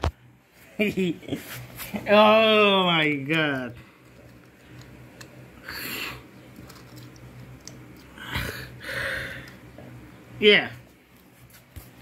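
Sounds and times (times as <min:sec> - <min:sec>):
low steady hum: 0:00.0 - 0:12.0
plastic figures rustling: 0:06.4 - 0:08.2.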